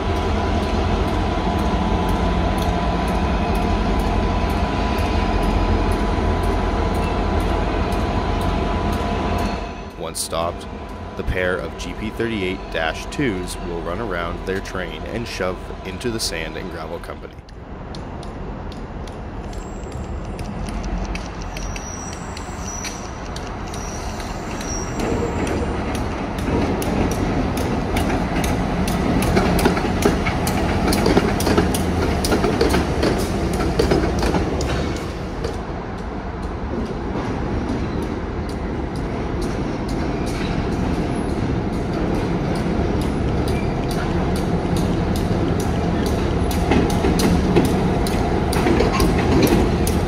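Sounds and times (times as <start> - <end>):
diesel locomotive engines rumbling: 0.0 - 50.0
wheels clicking over rail joints: 17.5 - 50.0
high wheel squeals: 21.4 - 25.8.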